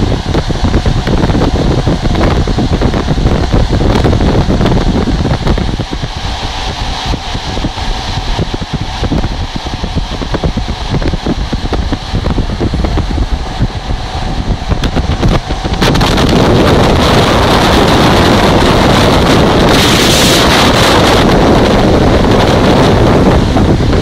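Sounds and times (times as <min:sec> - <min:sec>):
train running noise: 0:00.0 - 0:24.0
wind buffeting microphone: 0:00.0 - 0:24.0.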